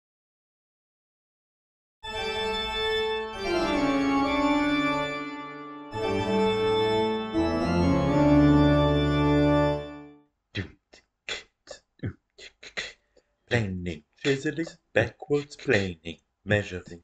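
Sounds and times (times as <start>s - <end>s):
spooky organ chords: 2.0s - 10.1s.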